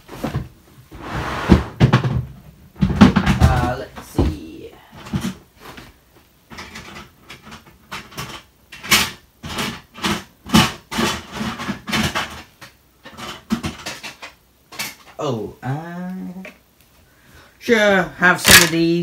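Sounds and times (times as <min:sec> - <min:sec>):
toy train track pieces clattering: 0:18.4 - 0:18.9.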